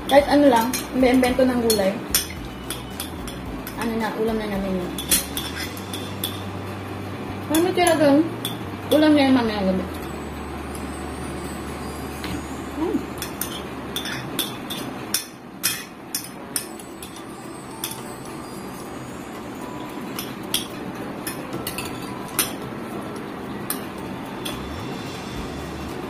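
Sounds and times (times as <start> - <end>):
steady background noise: 0.0 - 26.0
cutlery clinking on plates: 5.0 - 6.5, 13.2 - 18.1.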